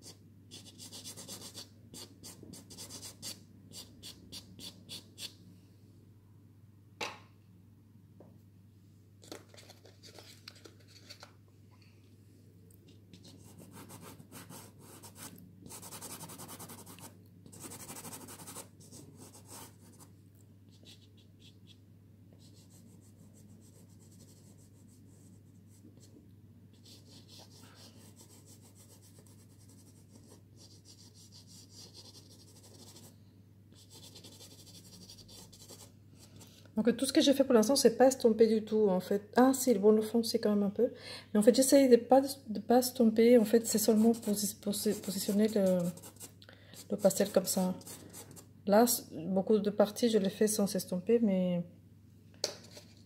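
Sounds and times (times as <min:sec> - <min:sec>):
pastel scratching on card: 0:13.1 - 0:20.0, 0:33.8 - 0:35.9, 0:43.8 - 0:48.5.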